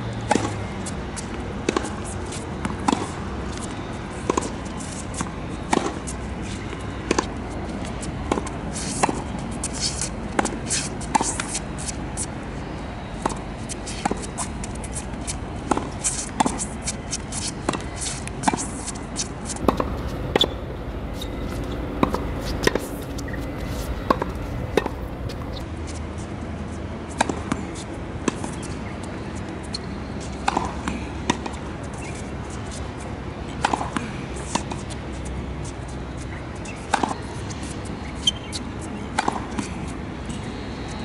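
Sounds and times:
steady background noise: 0.0s - 41.0s
tennis balls struck and bouncing: 19.6s - 25.6s.

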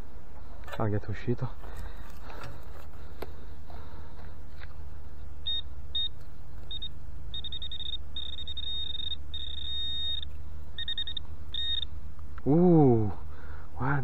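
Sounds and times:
metal detector beeping: 5.4s - 11.9s.

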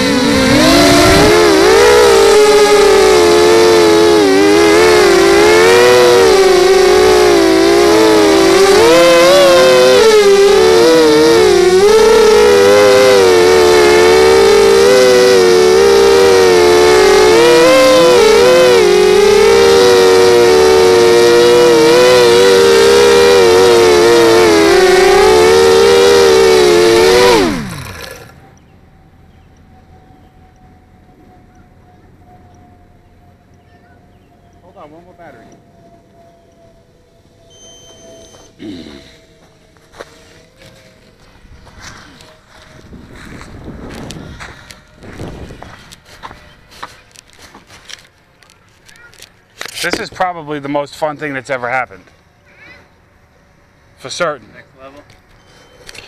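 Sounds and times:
quadcopter motors whining: 0.0s - 56.0s
faint steady tone: 28.3s - 43.0s.

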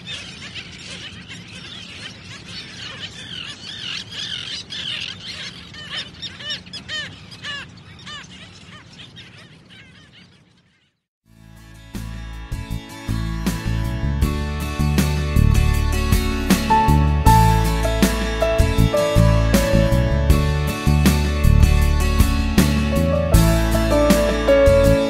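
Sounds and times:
flock of birds calling: 0.0s - 11.0s.

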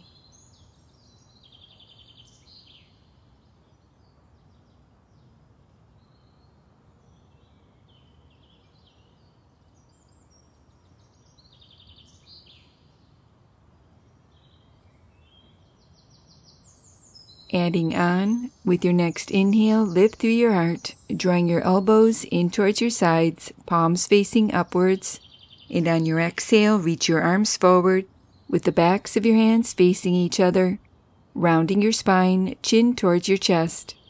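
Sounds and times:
quiet outdoor hiss: 0.0s - 34.0s
small birds chirping: 0.0s - 34.0s.

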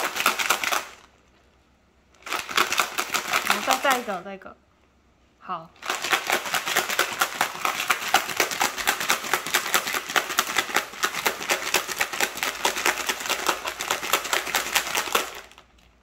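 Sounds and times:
bottle being shaken: 2.2s - 4.1s, 5.8s - 15.6s.

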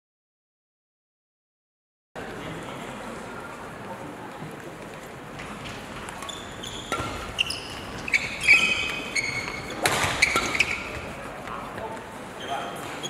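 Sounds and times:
shoes squeaking on court floor: 5.4s - 13.0s
racket striking shuttlecock: 6.9s - 7.4s, 8.0s - 11.0s.

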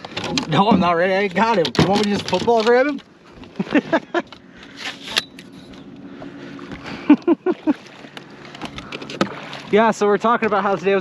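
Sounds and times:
knocks and clicks of gear: 0.0s - 3.6s.

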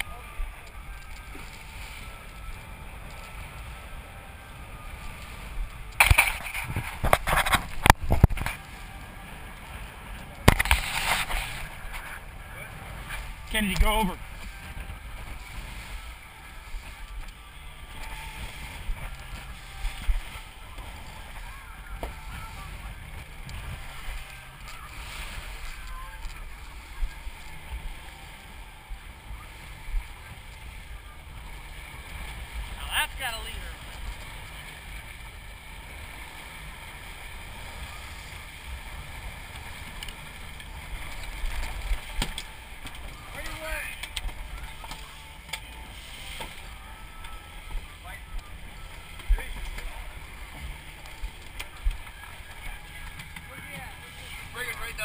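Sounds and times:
wind rumble on microphone: 0.0s - 32.8s
water rushing in wake: 0.0s - 55.0s.

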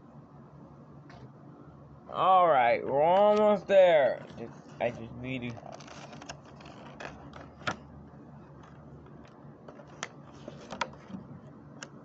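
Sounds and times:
plastic packaging rustling: 4.6s - 7.9s, 8.5s - 11.2s.

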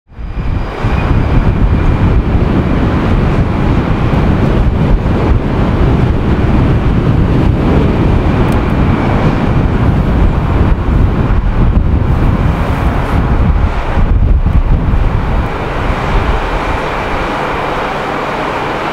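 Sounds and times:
jet engine noise: 0.1s - 18.9s
wind buffeting microphone: 0.1s - 18.9s.

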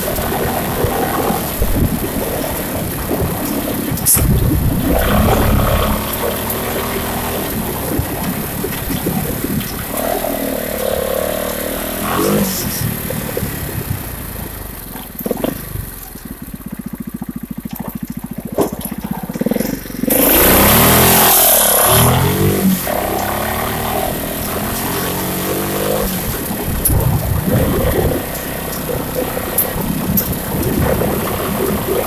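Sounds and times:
loud rushing noise: 0.0s - 14.4s
motorcycle engine revving: 0.0s - 32.0s.

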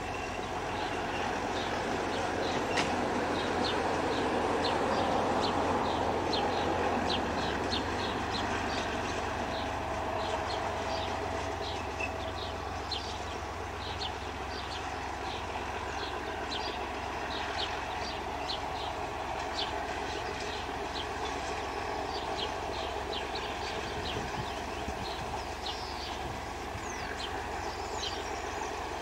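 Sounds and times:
train running: 0.0s - 29.0s
bird chirping: 22.1s - 28.8s.

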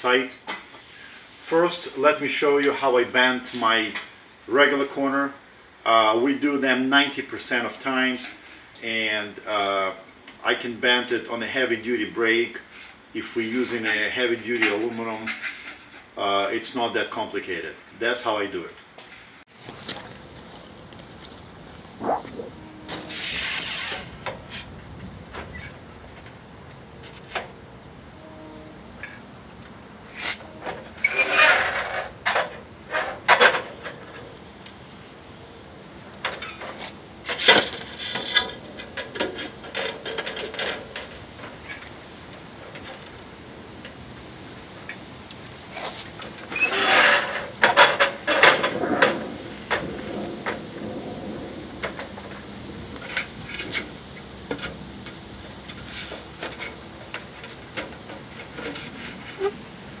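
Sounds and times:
metal sheet scraping on metal: 21.9s - 24.7s.

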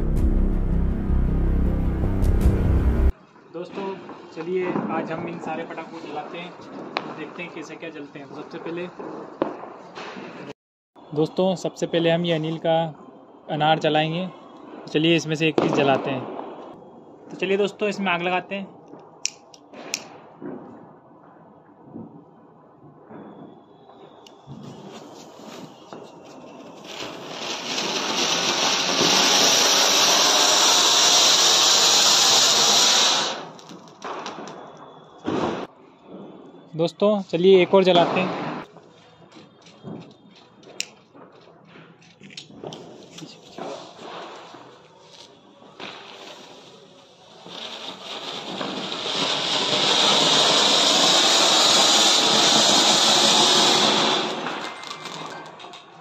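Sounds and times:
firework fountain hissing: 24.2s - 35.1s, 42.7s - 55.4s.

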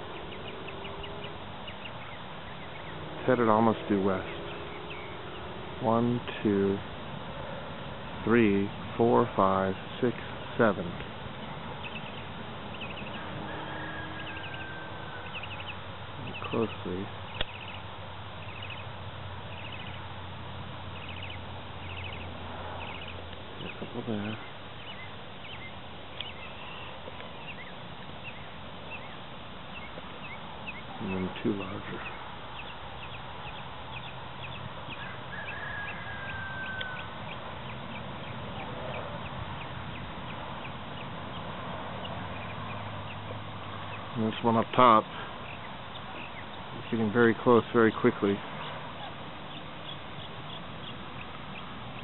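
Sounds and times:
steady low hum: 0.0s - 35.3s
birds chirping: 0.0s - 52.0s
steady background hiss: 0.0s - 52.0s.

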